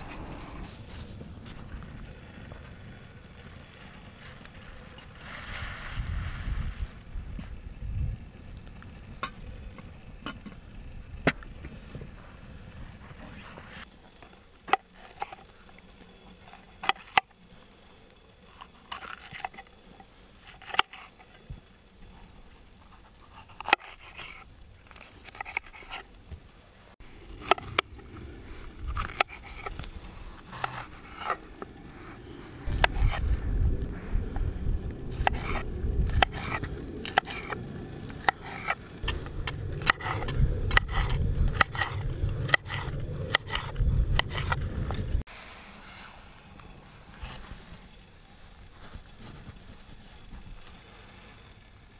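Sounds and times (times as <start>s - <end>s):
wood fire crackling: 0.6s - 14.7s.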